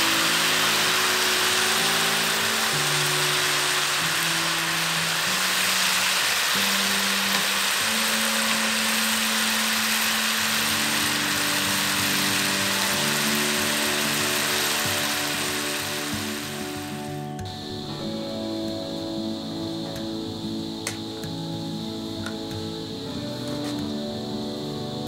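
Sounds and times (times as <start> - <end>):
chicken sizzling in a frying pan: 0.0 - 17.1
soft background music: 0.0 - 25.0.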